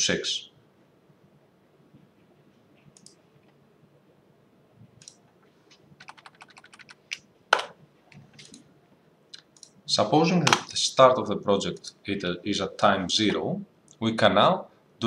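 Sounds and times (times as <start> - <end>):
computer keyboard keystrokes: 6.0 - 7.7.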